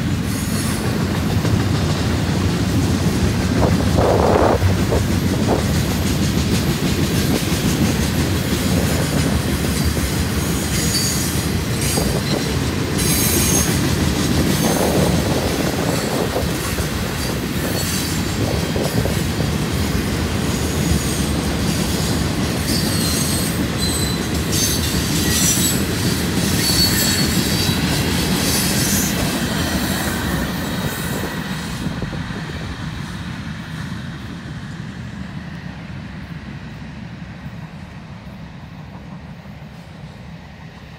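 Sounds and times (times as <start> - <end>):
train wheels rumbling on rails: 0.0 - 40.9
high-pitched wheel squeal: 10.6 - 12.4, 22.7 - 25.9, 26.6 - 27.8.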